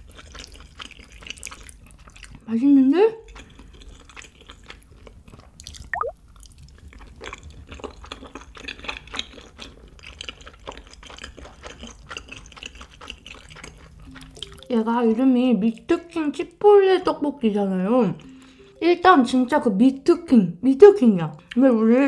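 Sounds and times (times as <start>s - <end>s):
wet chewing smacks: 0.0s - 2.4s, 3.3s - 14.7s.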